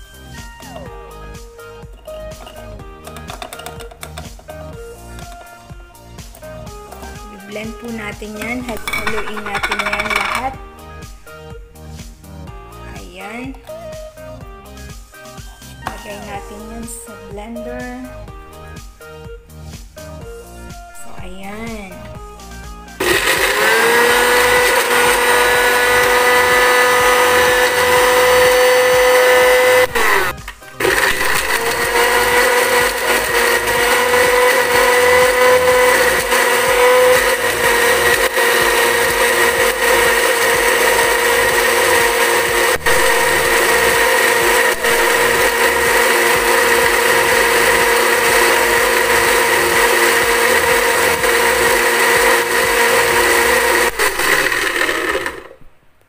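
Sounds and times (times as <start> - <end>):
electric blender running: 8.6 - 10.6, 23.0 - 55.6.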